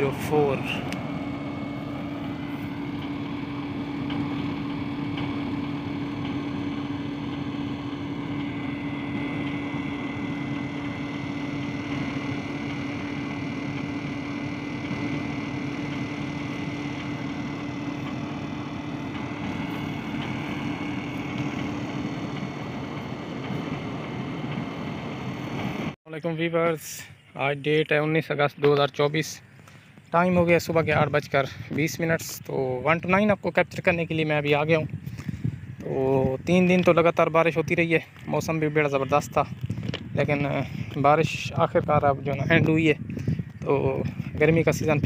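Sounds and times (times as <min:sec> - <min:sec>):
diesel locomotive idling: 0:00.0 - 0:27.3
high engine whine: 0:00.0 - 0:45.0.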